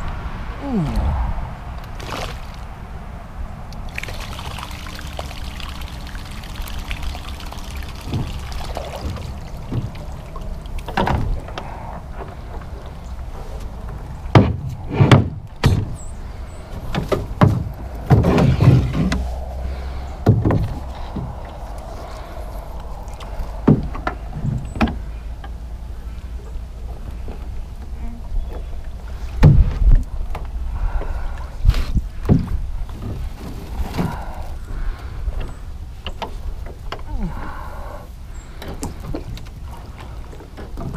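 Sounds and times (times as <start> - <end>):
water sloshing around kayak hull: 3.9 - 13.6
knocks and thumps from hull and paddle: 8.0 - 13.6, 14.3 - 16.0, 16.8 - 21.6, 23.2 - 25.6, 29.4 - 30.4, 32.2 - 34.3, 38.6 - 40.9.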